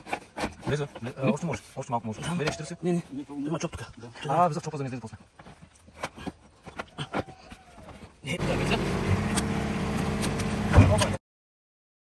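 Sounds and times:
small tractor engine running: 8.4 - 11.2.

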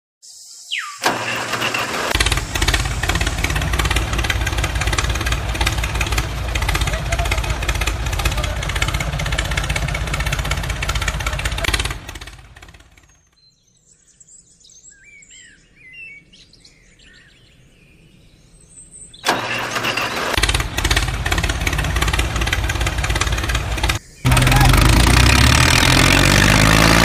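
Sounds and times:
birds chirping: 0.2 - 27.0
mini tractor engine running: 1.0 - 13.2, 19.3 - 27.0.

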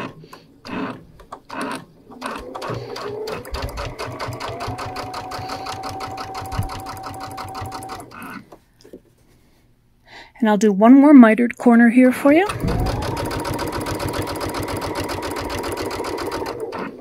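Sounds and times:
sewing machine stitching: 0.0 - 8.5, 12.3 - 17.0.

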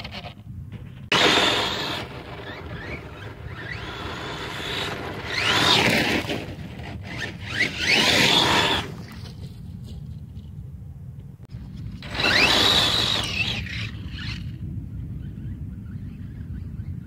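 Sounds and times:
toy truck motor whine: 1.1 - 9.1, 12.0 - 14.5.

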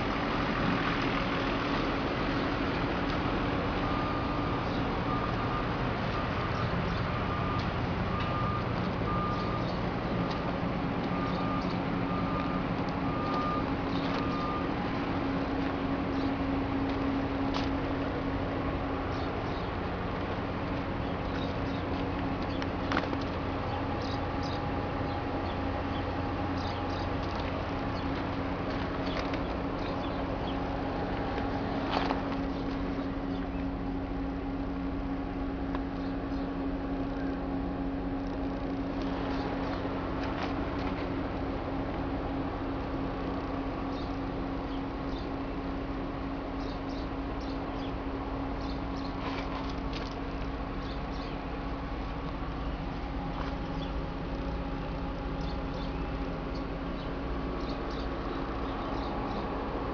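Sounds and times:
constant low hum: 0.0 - 59.9.

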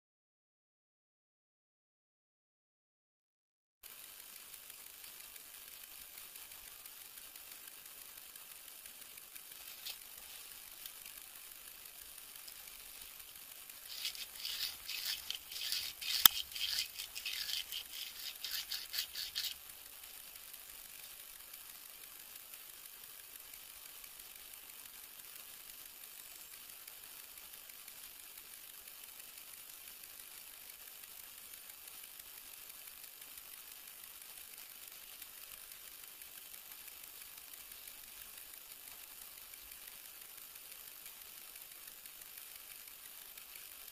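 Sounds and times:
dry grass rustling and crackling: 9.4 - 11.1, 13.7 - 19.6
sharp click: 13.9 - 19.6.

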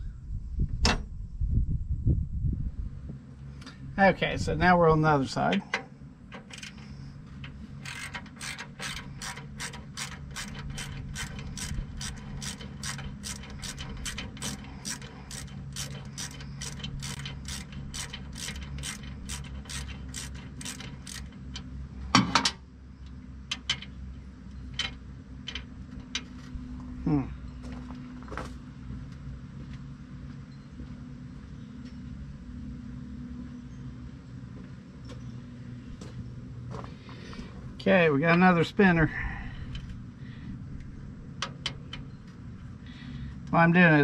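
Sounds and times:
hand ratchet clicking: 6.4 - 6.8, 7.8 - 21.4.

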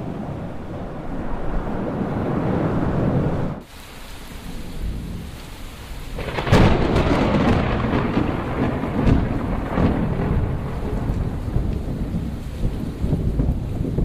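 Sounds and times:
rain: 0.0 - 14.0
wind: 0.0 - 14.0
deep rumble: 6.2 - 14.0.

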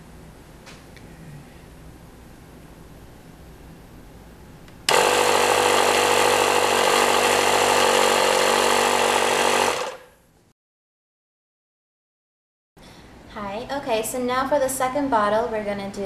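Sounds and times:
air compressor running: 4.9 - 10.1.

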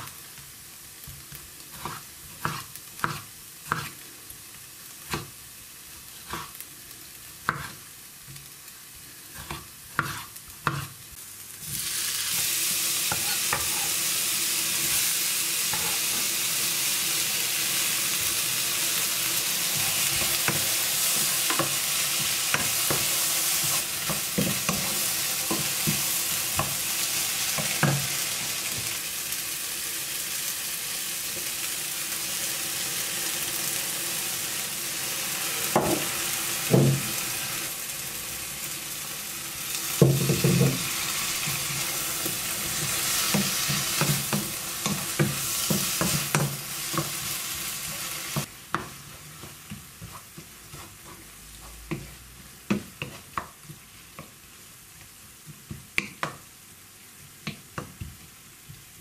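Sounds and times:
vegetables sizzling in a pan: 0.0 - 59.0
wooden spoon scraping a pan: 1.7 - 4.0, 7.5 - 7.8, 9.3 - 11.0, 11.6 - 14.0, 15.7 - 16.3, 19.6 - 28.2, 40.0 - 53.4
knife chopping on cutting board: 1.8 - 3.9.

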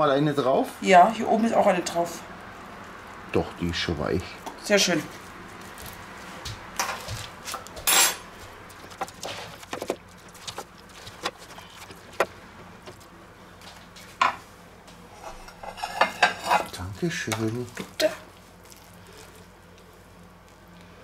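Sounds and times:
utensils scraping glass dish: 15.2 - 16.8.

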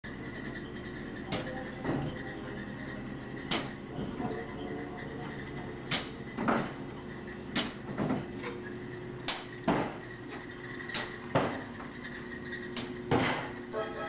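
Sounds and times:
oven machine hum: 0.0 - 14.0
oven shelves knocking and clattering: 1.3 - 2.3, 3.4 - 4.2, 5.8 - 8.6, 9.2 - 10.1, 10.9 - 11.9, 12.7 - 13.6.

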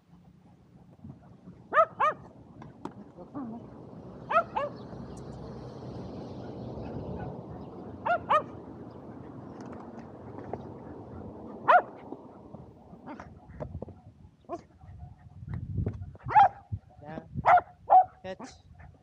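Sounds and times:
dog barking high-pitched: 1.7 - 2.2, 4.3 - 4.8, 8.0 - 8.6, 11.6 - 11.9, 16.2 - 16.6, 17.4 - 18.6.

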